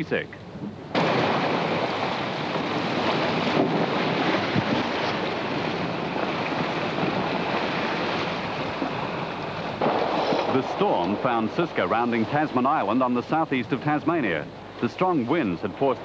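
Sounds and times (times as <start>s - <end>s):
strong wind: 0.5s - 12.9s
wind buffeting microphone: 0.5s - 13.2s
breaking seas: 0.9s - 16.0s.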